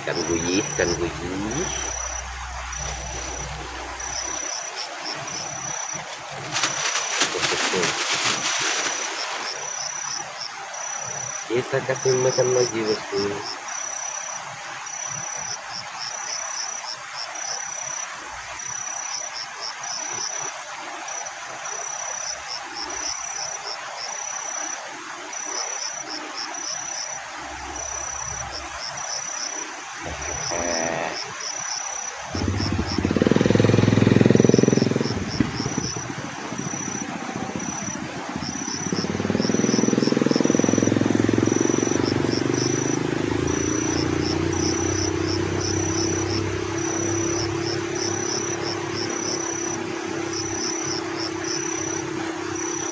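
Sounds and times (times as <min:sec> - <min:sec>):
motor engine drone: 0:00.0 - 0:06.4, 0:32.4 - 0:36.1, 0:38.8 - 0:52.9
insects chirping: 0:00.0 - 0:52.9
low rumble: 0:00.7 - 0:04.5.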